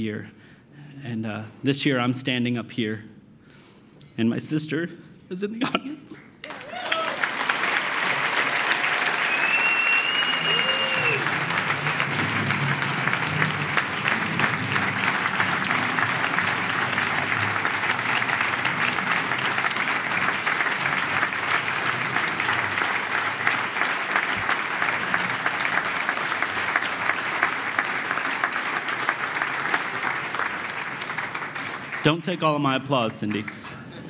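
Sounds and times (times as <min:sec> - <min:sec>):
audience applauding: 0:06.4 - 0:33.5.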